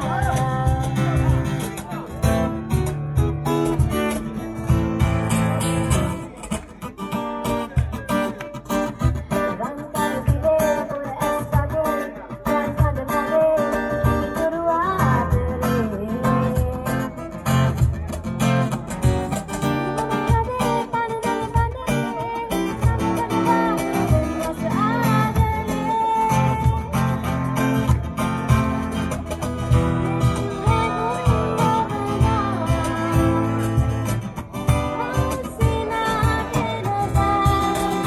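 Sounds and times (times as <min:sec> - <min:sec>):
person singing: 0:00.0 - 0:01.8, 0:09.4 - 0:17.4, 0:20.0 - 0:27.4, 0:30.0 - 0:34.1, 0:34.7 - 0:38.0
strummed acoustic guitar: 0:00.0 - 0:38.0.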